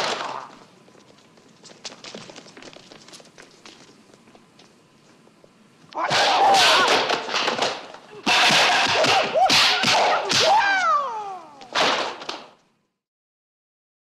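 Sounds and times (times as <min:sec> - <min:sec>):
fighters shouting and crying: 0:05.9 - 0:07.2, 0:08.1 - 0:11.8.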